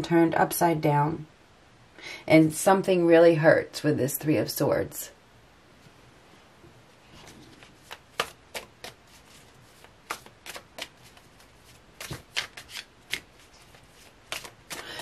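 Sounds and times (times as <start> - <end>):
cards being shuffled: 7.1 - 15.0.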